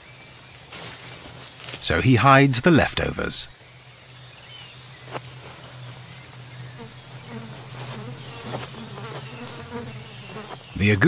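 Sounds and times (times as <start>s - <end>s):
high-pitched insect drone: 0.0s - 11.0s.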